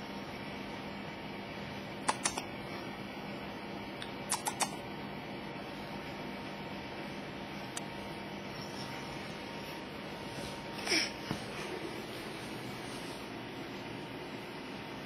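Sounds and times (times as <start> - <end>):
faint hum: 0.0 - 15.0
small sharp clicks: 2.1 - 2.4, 4.0 - 4.8.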